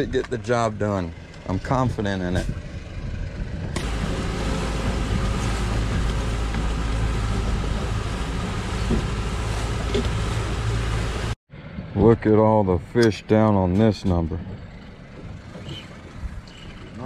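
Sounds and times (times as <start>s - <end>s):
outboard motor running: 0.0s - 11.4s, 13.0s - 17.0s.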